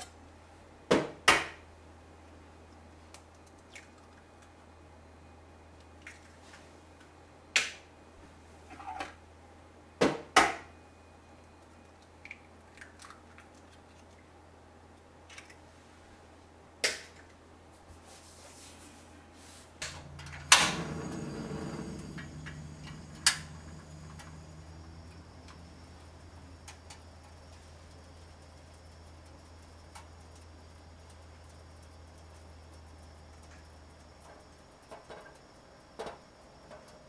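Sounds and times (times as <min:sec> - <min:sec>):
gas burner hissing: 0:19.4 - 0:37.0.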